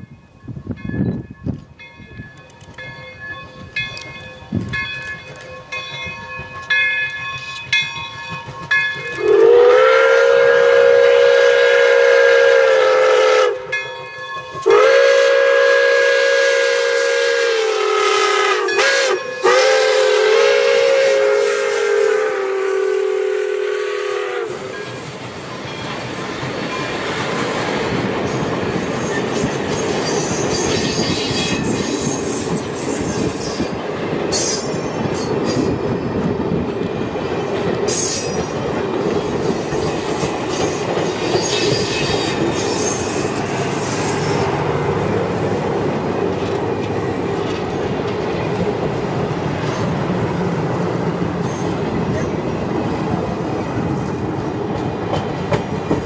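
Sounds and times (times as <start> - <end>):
locomotive bell ringing: 0.0 - 9.6, 13.6 - 15.0, 18.5 - 19.9, 24.5 - 27.3, 37.3 - 50.7
approaching train noise: 0.0 - 56.0
chime steam whistle blasts: 6.6 - 26.0, 41.0 - 44.6.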